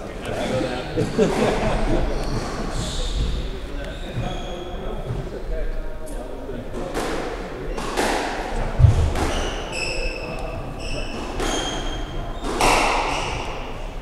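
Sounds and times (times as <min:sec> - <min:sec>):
shoe squeaks on wooden floor: 0:02.0 - 0:05.4, 0:09.0 - 0:13.9
squash ball thud: 0:06.9 - 0:09.6, 0:12.4 - 0:13.6.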